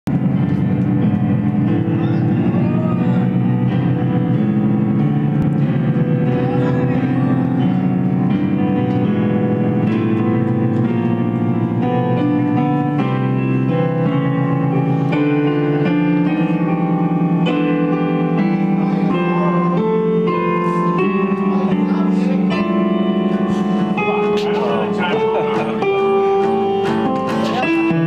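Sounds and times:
piano chords and melody: 0:00.1 - 0:28.0.

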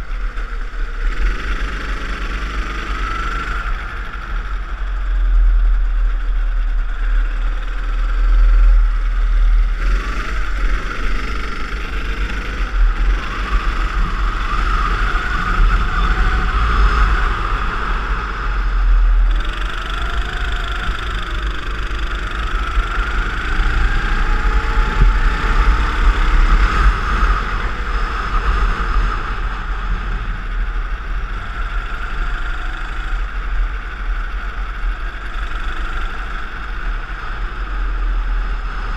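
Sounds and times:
go-kart engine revving: 0:00.0 - 0:38.9
wind rumble on microphone: 0:00.0 - 0:38.9.

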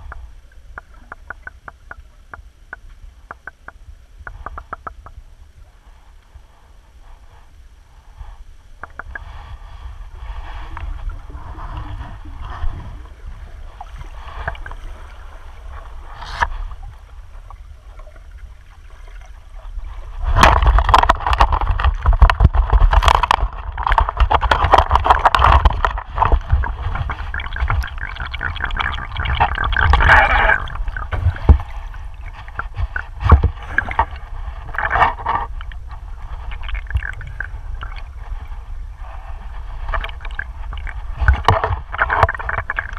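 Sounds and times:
underwater river rumble: 0:00.0 - 0:42.9
net scraping stony riverbed: 0:09.0 - 0:17.4, 0:19.6 - 0:42.9.

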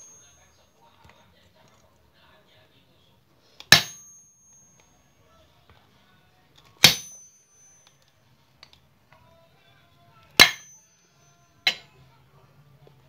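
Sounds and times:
hammer blows with metallic ring: 0:03.6 - 0:05.3, 0:06.8 - 0:08.1, 0:10.4 - 0:12.1.

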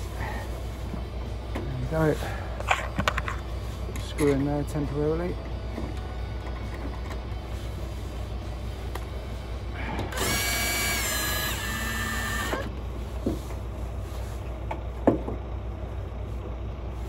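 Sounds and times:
cordless drill whining: 0:10.1 - 0:12.7.

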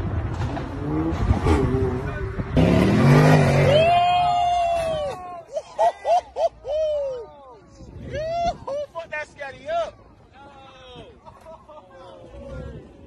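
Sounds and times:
traffic noise: 0:00.0 - 0:13.0
car engine revving: 0:00.3 - 0:03.9.

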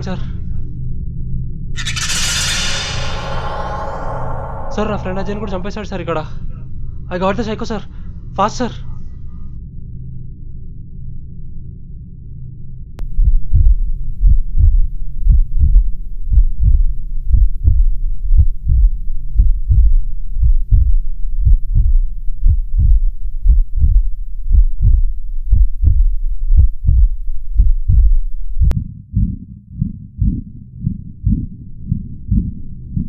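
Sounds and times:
low droning hum: 0:00.0 - 0:08.4, 0:09.0 - 0:33.0
heartbeat thuds: 0:13.0 - 0:33.0.

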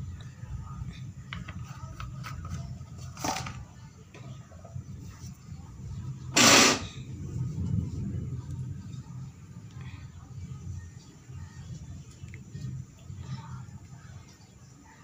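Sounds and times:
gas burner rumble: 0:00.0 - 0:15.0
short noise bursts: 0:06.4 - 0:07.0.

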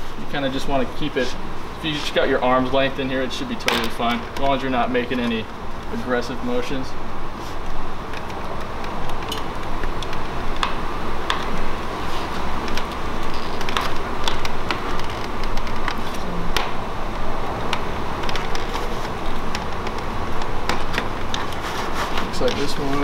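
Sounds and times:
steady fan hum: 0:00.0 - 0:23.0.

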